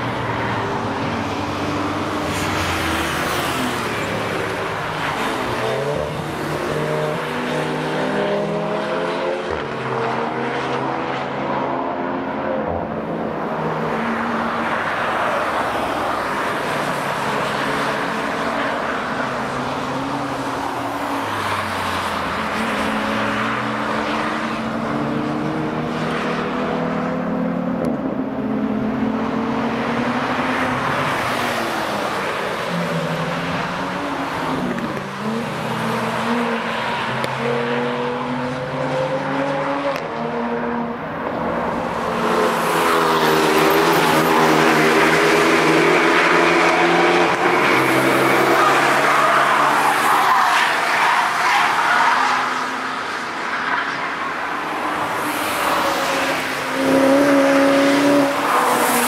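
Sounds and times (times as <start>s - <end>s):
cars passing at speed: 0.0s - 59.0s.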